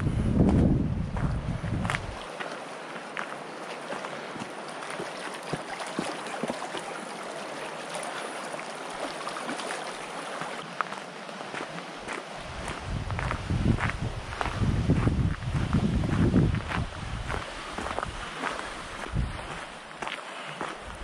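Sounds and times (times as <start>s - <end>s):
small waves lapping on rocks: 1.8s - 13.2s, 17.3s - 21.0s.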